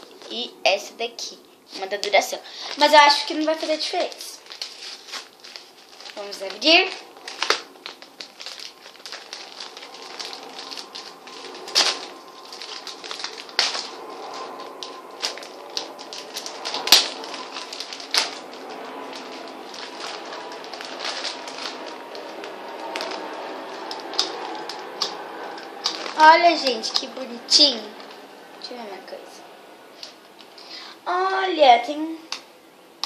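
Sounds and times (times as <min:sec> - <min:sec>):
plastic packaging crinkling: 0:00.0 - 0:00.5, 0:01.7 - 0:28.7
sharp plastic snaps: 0:32.3 - 0:32.5.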